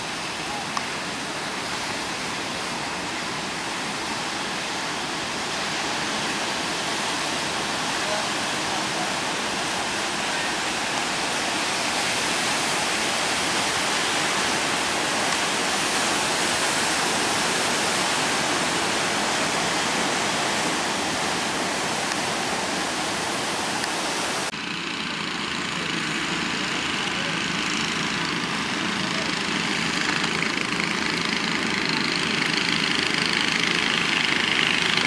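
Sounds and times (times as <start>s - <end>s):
heavy surf breaking: 0.0s - 24.5s.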